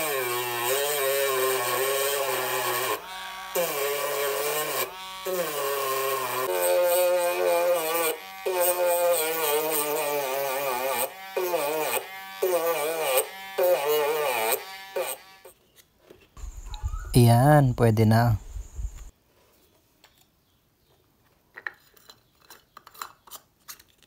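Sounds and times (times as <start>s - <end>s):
rotary tool grinding metal: 0.0s - 15.6s.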